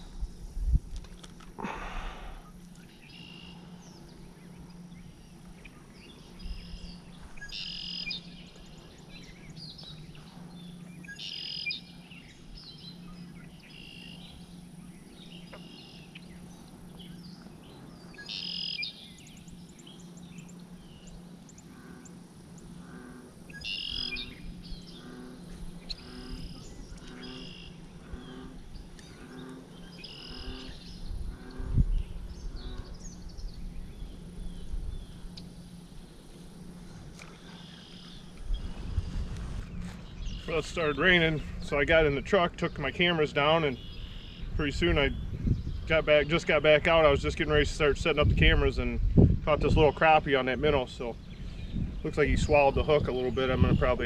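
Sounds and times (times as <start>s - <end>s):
birds singing: 0.0s - 54.0s
steady low hum: 0.0s - 54.0s
soft bird call: 1.6s - 14.6s, 15.2s - 33.3s.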